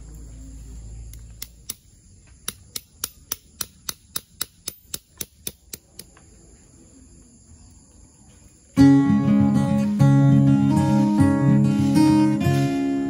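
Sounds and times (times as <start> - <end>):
hammer striking tent stake: 1.4 - 6.1.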